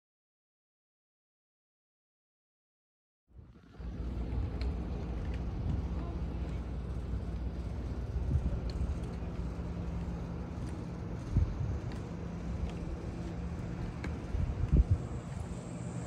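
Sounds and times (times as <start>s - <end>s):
low hum: 3.3s - 16.0s
low rumble: 3.3s - 16.0s
faint clicks: 4.4s - 5.8s.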